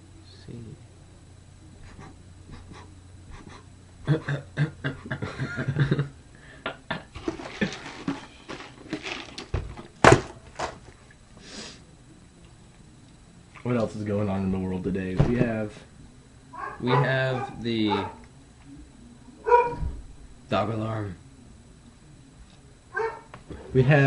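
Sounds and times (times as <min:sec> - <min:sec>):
men snickering and giggling: 0:01.8 - 0:08.0.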